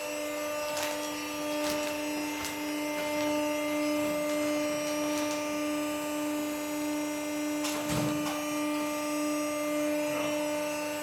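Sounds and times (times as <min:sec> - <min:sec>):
electric motor hum: 0:00.0 - 0:11.0.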